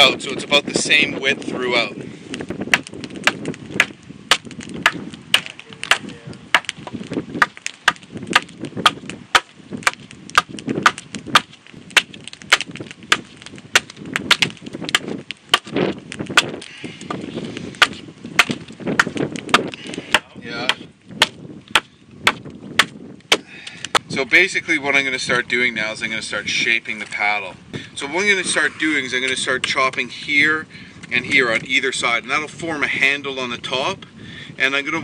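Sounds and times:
knife chopping wood: 2.7s - 17.2s, 17.8s - 24.1s.

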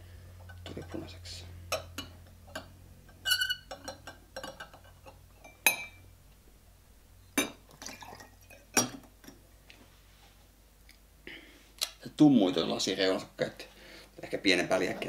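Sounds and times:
glass clinking on glass: 5.4s - 6.0s, 7.4s - 7.6s
liquid pouring: 7.6s - 9.0s.

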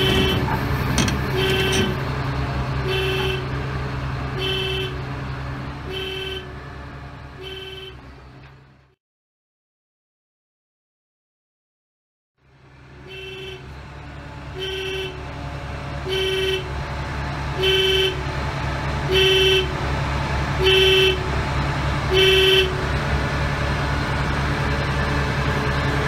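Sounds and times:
warning horn beeps: 0.0s - 2.0s, 2.8s - 3.6s, 4.4s - 5.0s, 5.8s - 6.6s, 7.4s - 8.0s, 14.5s - 15.2s, 16.0s - 16.8s, 17.6s - 18.2s, 19.1s - 19.8s, 20.6s - 21.2s, 22.1s - 22.8s
diesel engine running: 0.0s - 9.0s, 12.4s - 26.0s.

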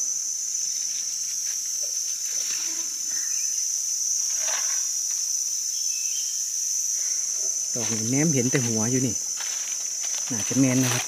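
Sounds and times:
insects droning: 0.0s - 11.0s
rustling in leaf litter: 7.7s - 11.0s.

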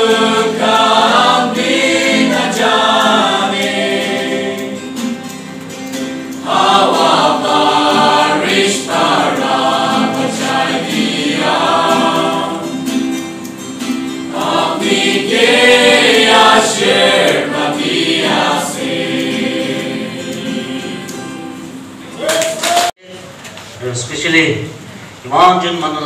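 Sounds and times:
choir singing a hymn: 0.0s - 5.3s, 6.1s - 13.2s, 14.2s - 22.1s
guitar accompaniment: 0.0s - 23.4s.

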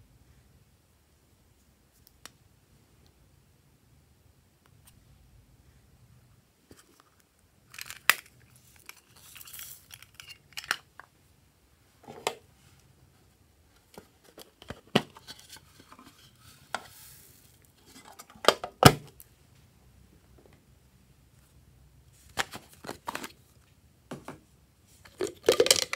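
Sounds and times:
plastic containers clicking and knocking: 25.1s - 25.9s.

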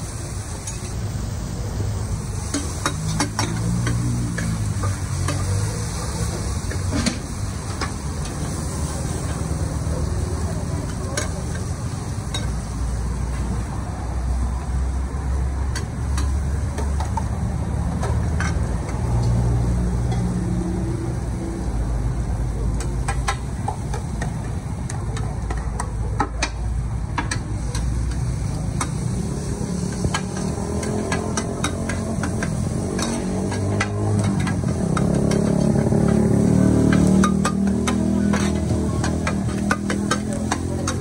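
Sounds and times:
noodles frying in a wok: 0.0s - 41.0s
metal utensils scraping a pan: 27.2s - 41.0s.

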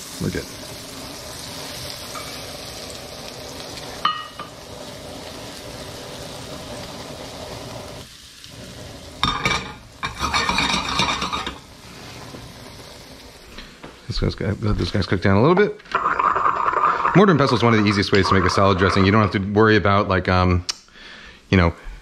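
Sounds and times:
mushrooms sizzling in butter: 0.0s - 20.3s.

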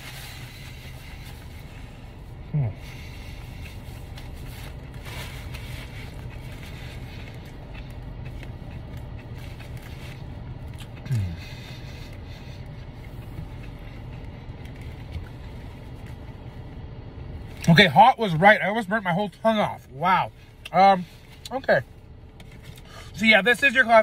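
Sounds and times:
car idling hum: 0.0s - 24.0s
man humming while eating: 2.4s - 2.8s, 11.0s - 11.6s.

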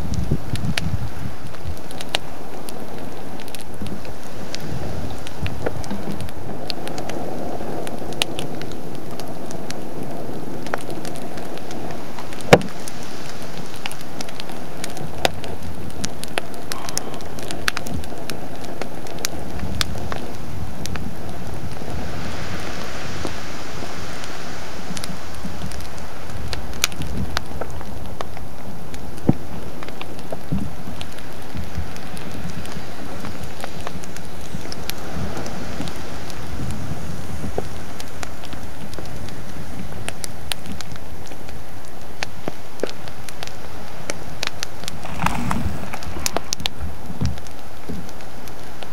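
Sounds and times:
sharp cracks and pops: 0.0s - 23.5s, 24.1s - 48.9s
hissing steam: 0.0s - 26.8s, 42.6s - 48.9s
rumbling rush of lava explosions: 0.0s - 48.9s.

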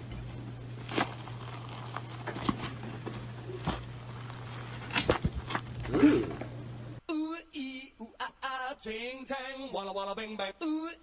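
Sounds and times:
steady low hum: 0.0s - 7.0s
crinkly object crackling and tearing: 0.7s - 5.9s.

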